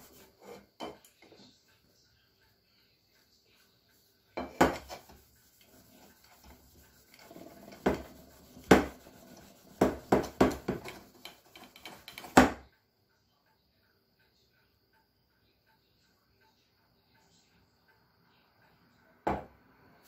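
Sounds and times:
cloth rubbing on metal: 0:00.0 - 0:00.7, 0:03.1 - 0:12.4.

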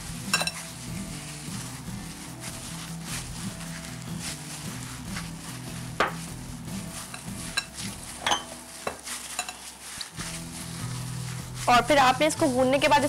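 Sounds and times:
hands kneading dough: 0:00.0 - 0:13.0
soft background music: 0:00.0 - 0:13.0
knocks and clinks against bowl: 0:00.3 - 0:00.6, 0:07.2 - 0:09.7.

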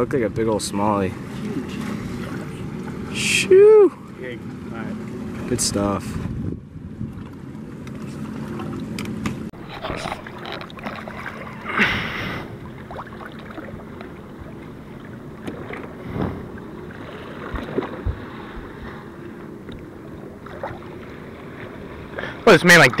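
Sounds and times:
water lapping against boat: 0:00.0 - 0:23.0
small water splashes: 0:09.6 - 0:23.0.

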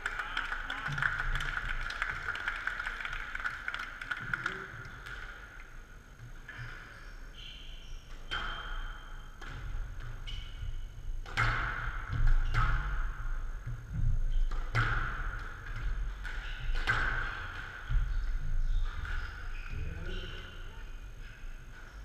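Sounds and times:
squash ball hits echoing: 0:11.2 - 0:19.3
sneakers squeaking on court: 0:18.0 - 0:20.5.

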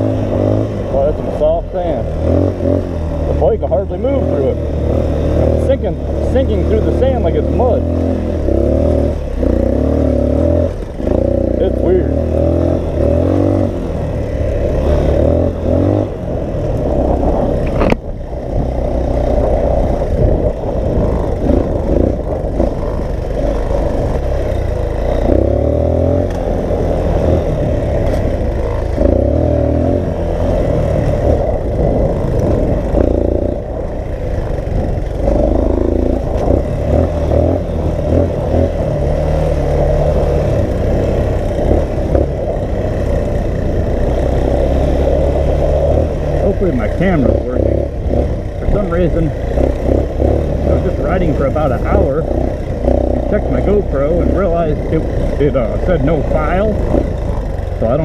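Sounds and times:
dirt bike engine revving: 0:00.0 - 0:58.0
wind buffeting microphone: 0:12.2 - 0:53.9.

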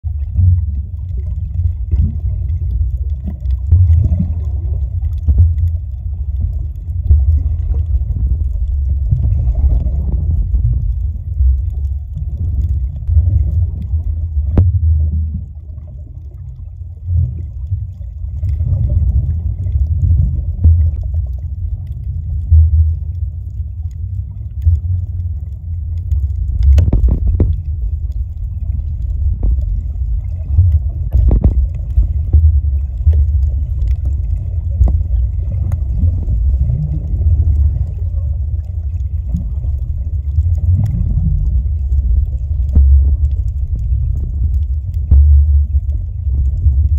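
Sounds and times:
muffled underwater rumble: 0:00.0 - 0:46.9.

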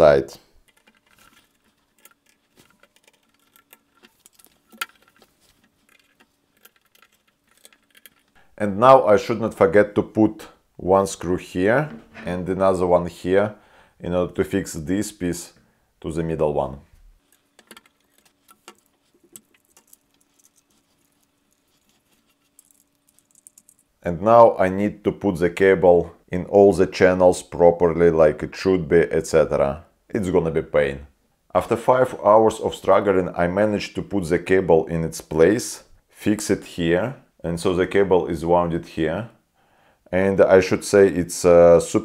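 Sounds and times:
faint steady hum: 0:00.0 - 0:42.0
small parts clicking and tapping: 0:00.6 - 0:08.4, 0:17.2 - 0:24.0.

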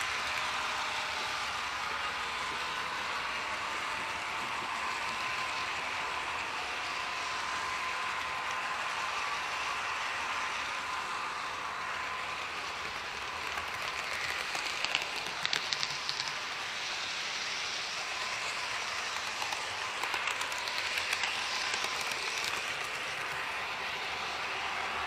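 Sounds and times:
small wheels hissing on rail: 0:00.0 - 0:25.0
wheels clicking over rail joints: 0:12.2 - 0:16.6, 0:18.1 - 0:25.0.

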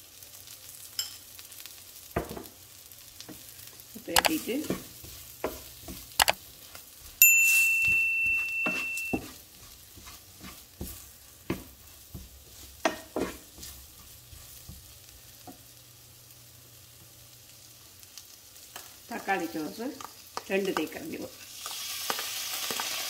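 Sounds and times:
light sizzle: 0:00.0 - 0:23.0
wooden spoon scraping frying pan: 0:03.2 - 0:15.6
loud chime-like ding: 0:07.2 - 0:09.2.

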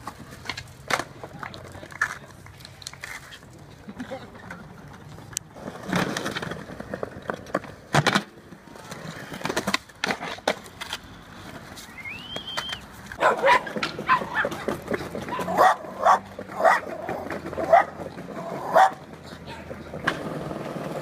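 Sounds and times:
skateboard clacking: 0:00.0 - 0:21.0
skateboard wheels rolling: 0:00.0 - 0:21.0
dogs yipping and barking: 0:13.2 - 0:19.0.

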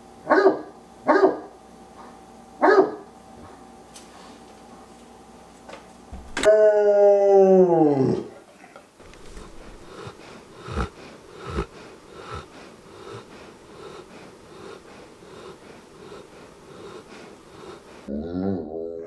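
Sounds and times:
dog snoring: 0:09.0 - 0:18.6.

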